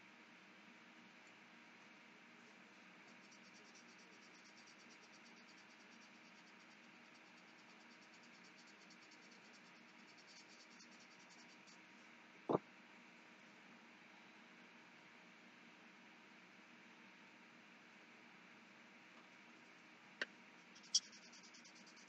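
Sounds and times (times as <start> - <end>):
fast high ticking: 20.8 - 22.0.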